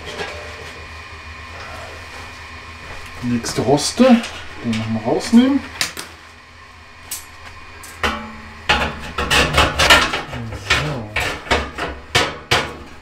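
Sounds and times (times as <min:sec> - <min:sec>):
wire grill grate clattering on metal: 0:07.8 - 0:12.8.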